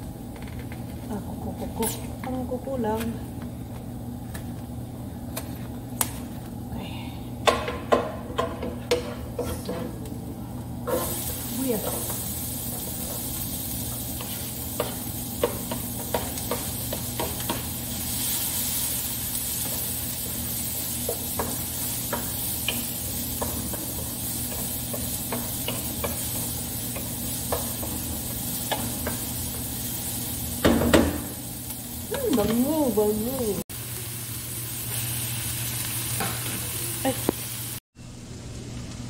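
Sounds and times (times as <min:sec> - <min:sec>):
utensil knocking against pan: 0:07.4 - 0:09.8, 0:14.8 - 0:17.7
food sizzling in oil: 0:10.7 - 0:37.8.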